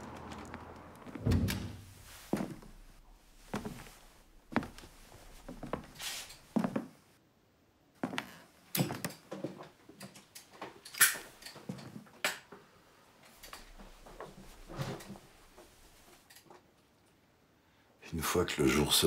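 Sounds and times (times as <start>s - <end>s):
small clicks knocks and rustles: 8.7s - 17.2s.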